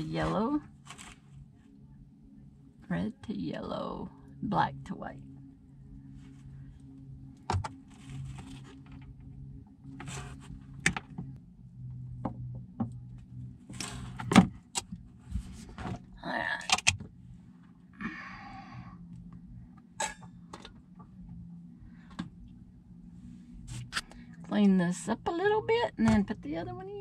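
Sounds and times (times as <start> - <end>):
rustling and scraping: 0.0 - 1.8, 7.7 - 11.2, 13.6 - 14.4, 15.0 - 16.1, 23.2 - 24.1
low hum: 0.0 - 27.0.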